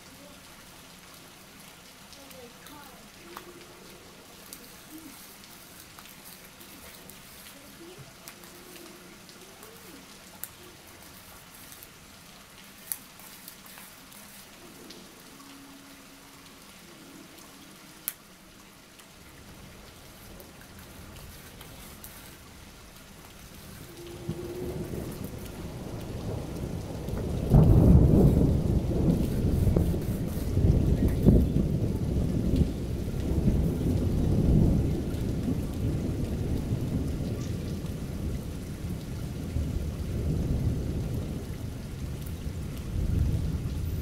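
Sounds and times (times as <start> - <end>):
steady rain hiss: 0.0 - 44.0
low rumble of thunder: 19.2 - 44.0.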